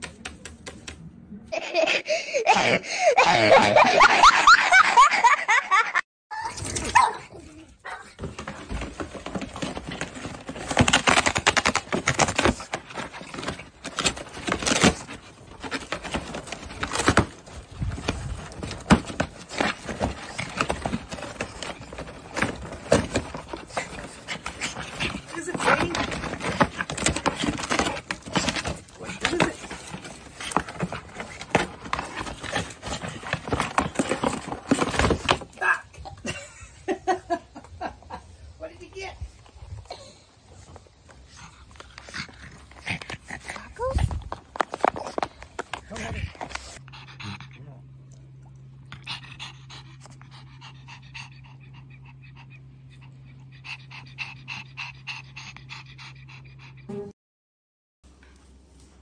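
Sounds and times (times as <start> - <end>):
cardboard ripping and crackling: 8.2 - 35.6
dog panting quickly: 45.9 - 47.7, 48.9 - 57.0.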